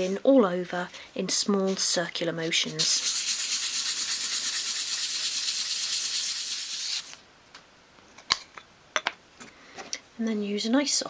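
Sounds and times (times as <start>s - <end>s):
sandpaper rubbing on wood: 2.6s - 7.1s.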